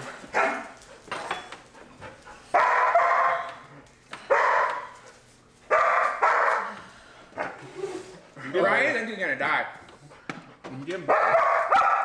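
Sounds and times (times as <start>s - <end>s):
dog barking: 0.3s - 0.8s, 2.5s - 3.6s, 4.3s - 5.0s, 5.7s - 6.8s, 11.0s - 12.0s.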